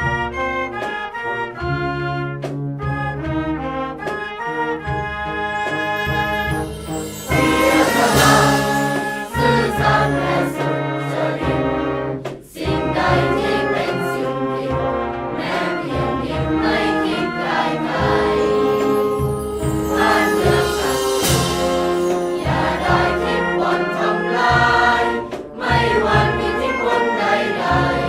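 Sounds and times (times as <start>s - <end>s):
orchestral backing: 0.0s - 28.0s
choir singing: 5.6s - 28.0s.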